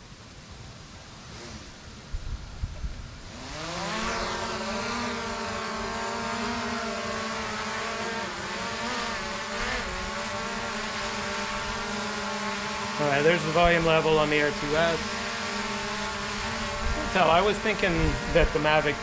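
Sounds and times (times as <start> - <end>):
drone propellers buzzing: 1.2 - 19.0.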